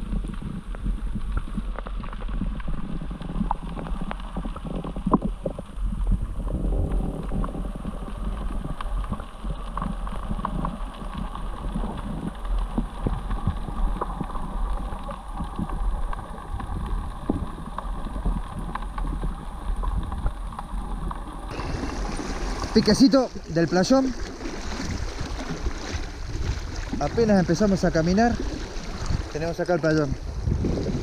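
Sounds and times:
small underwater clicks: 0.0 - 21.6
muffled underwater river rumble: 0.0 - 31.0.

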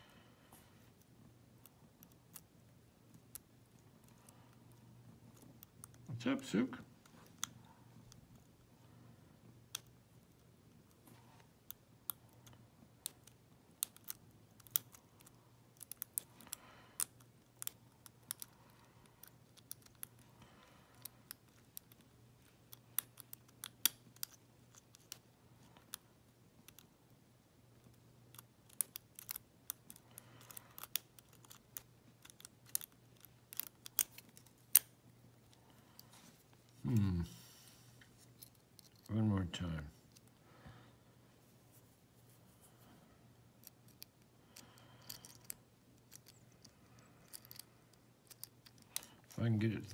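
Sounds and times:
lock pick clicking: 28.3 - 34.9.

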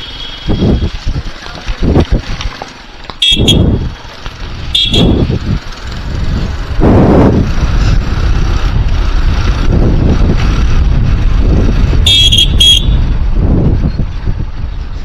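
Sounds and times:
motorcycle engine running: 0.0 - 14.8
wind buffeting microphone: 0.4 - 15.0.

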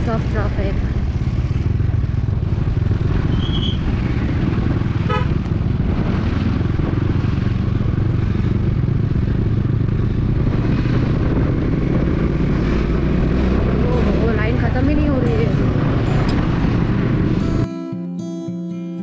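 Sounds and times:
motorcycle engine running: 0.0 - 17.7
vehicle horn toot: 5.0 - 5.4.

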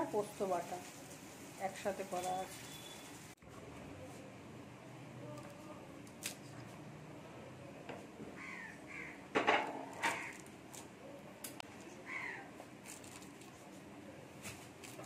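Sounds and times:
crow cawing: 8.4 - 9.2, 10.0 - 10.4, 12.0 - 12.5.

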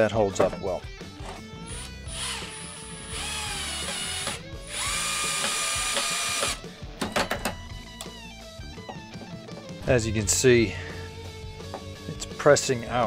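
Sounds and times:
cordless drill driving screw: 1.7 - 6.6.

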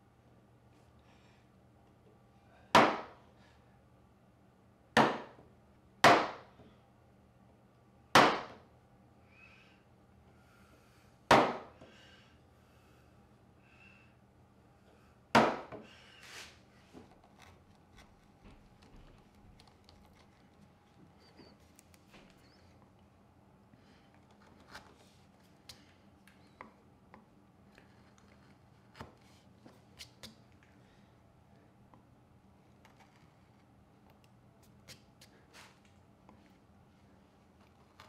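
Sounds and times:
gouge scraping wood: 16.3 - 20.7, 27.7 - 30.2.

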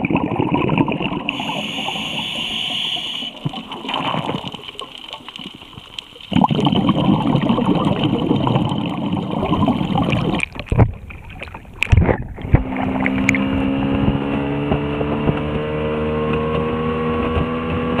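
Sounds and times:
water splashes: 0.0 - 13.7
water rushing past hull: 0.0 - 13.9
muffled underwater rushing water: 0.0 - 14.4
outboard motor running: 1.3 - 3.3, 12.4 - 15.5.

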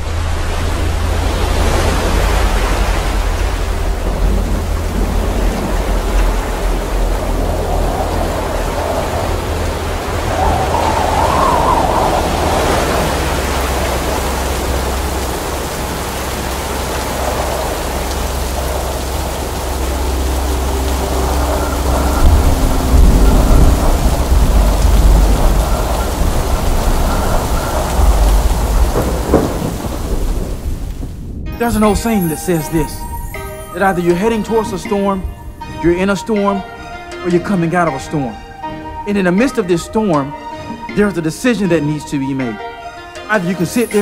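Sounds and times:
low rumble of thunder: 0.0 - 31.6
rain rushing: 0.0 - 44.0.

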